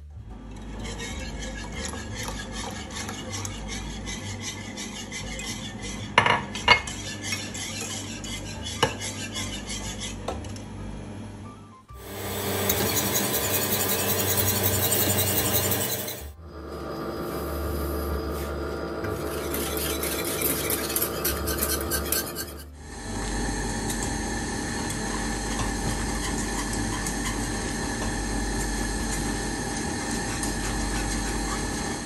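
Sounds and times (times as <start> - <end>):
whisk beating in metal saucepan: 0.5 - 10.4, 12.1 - 16.4, 19.0 - 22.7, 23.9 - 32.0
spatula scraping in glass jug: 0.7 - 10.2, 12.6 - 16.4, 18.4 - 22.7.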